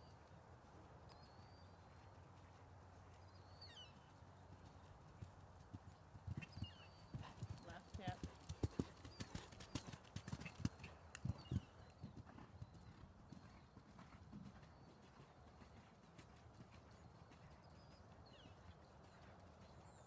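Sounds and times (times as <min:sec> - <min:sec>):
horse hoofbeats on sand: 0:04.5 - 0:20.0.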